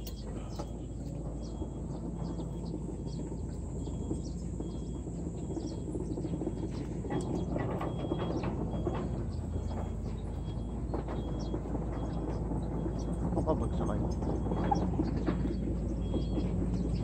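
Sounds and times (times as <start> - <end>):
diesel engine rumbling: 0.0 - 17.0.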